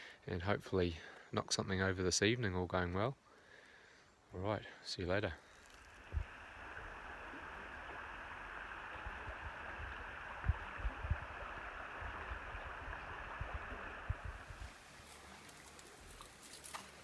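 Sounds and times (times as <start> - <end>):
river flowing over stones: 5.8 - 17.0.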